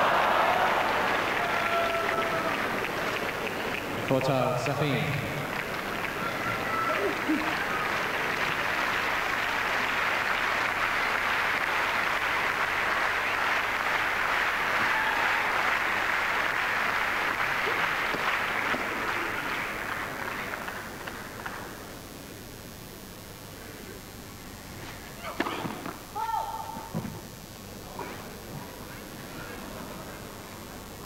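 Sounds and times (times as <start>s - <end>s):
crowd applauding: 0.0s - 21.9s.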